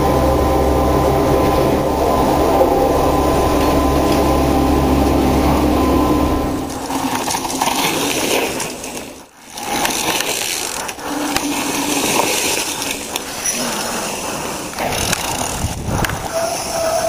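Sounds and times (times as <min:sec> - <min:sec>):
bike drivetrain clicking and rattling: 0:06.6 - 0:17.0
bike tyres crunching over stones: 0:06.6 - 0:17.0.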